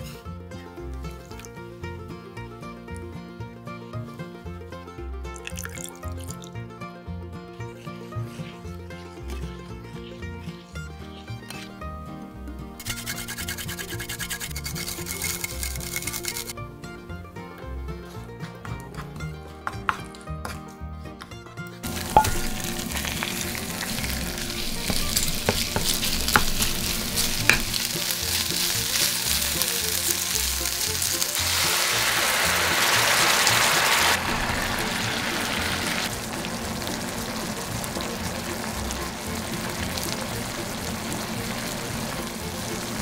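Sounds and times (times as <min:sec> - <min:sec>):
utensil tapping a pan: 0:18.6 - 0:20.6, 0:21.8 - 0:31.8
chicken sizzling in a frying pan: 0:21.8 - 0:43.0.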